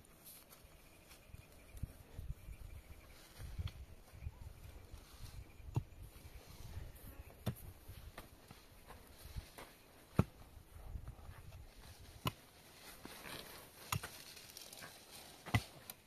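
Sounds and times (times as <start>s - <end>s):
pickaxe striking stony soil: 10.1s - 10.5s, 12.1s - 12.5s, 13.8s - 14.3s, 15.4s - 16.0s.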